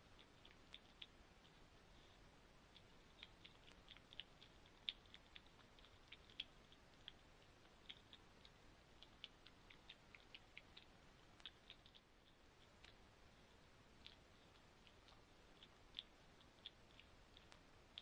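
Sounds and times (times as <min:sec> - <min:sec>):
faint irregular clicking: 0:00.0 - 0:18.0.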